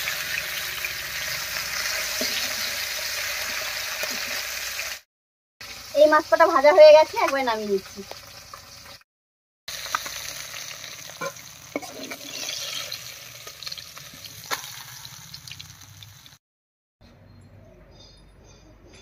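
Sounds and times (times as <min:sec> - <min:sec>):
fish sizzling in oil: 0:00.0 - 0:05.0, 0:05.6 - 0:09.0, 0:09.7 - 0:16.4.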